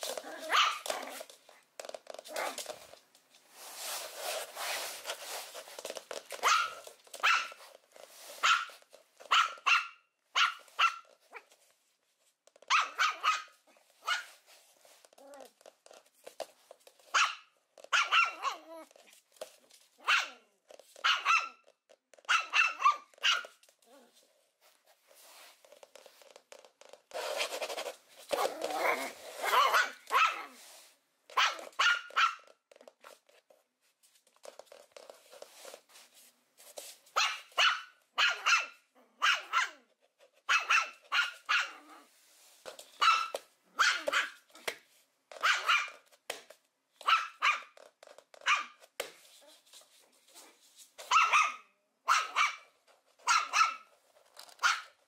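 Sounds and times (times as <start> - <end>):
small puppy barking: 0.1 - 1.3, 6.3 - 7.6, 8.4 - 11.5, 12.7 - 14.4, 17.1 - 19.0, 20.0 - 24.2, 28.3 - 30.6, 31.3 - 32.6, 37.1 - 39.9, 40.5 - 42.1, 43.0 - 46.0, 47.0 - 47.8, 48.4 - 48.8, 51.0 - 53.9, 54.5 - 55.0.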